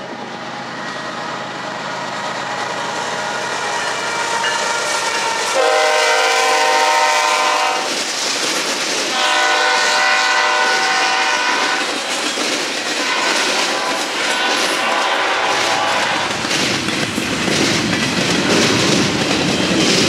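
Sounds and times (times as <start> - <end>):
train rumble and wheel clatter: 0.0 - 20.0
train air horn blasts: 3.4 - 7.9, 9.1 - 12.0, 13.0 - 16.4.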